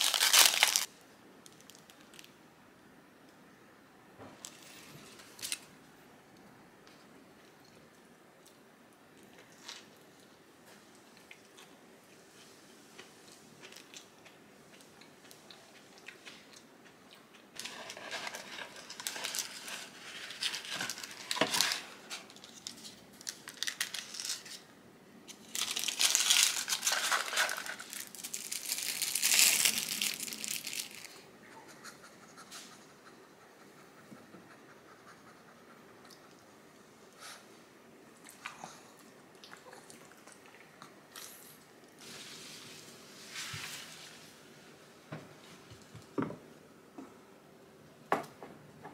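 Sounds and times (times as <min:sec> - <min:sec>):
food wrapping crinkling: 0:00.0 - 0:02.4, 0:17.6 - 0:24.7, 0:25.3 - 0:31.2.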